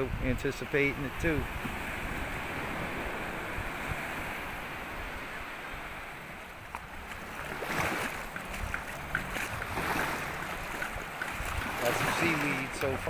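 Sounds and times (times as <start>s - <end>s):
surf hissing on beach: 0.0s - 13.0s
wave breaking on sand: 7.1s - 13.0s.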